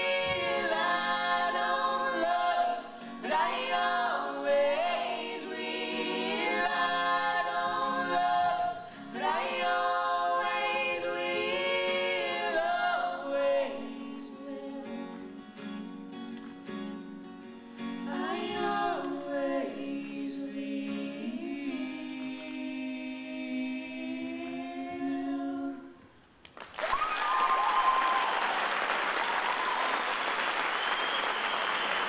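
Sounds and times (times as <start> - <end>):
voices singing in harmony: 0.0 - 16.0, 18.0 - 26.2
audience applause: 26.5 - 32.0
audience cheering: 26.7 - 32.0.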